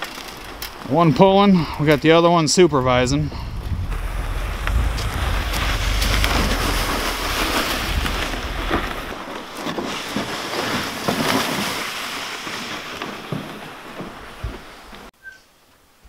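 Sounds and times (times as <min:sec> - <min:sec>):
wind rumble on microphone: 0:00.4 - 0:09.6.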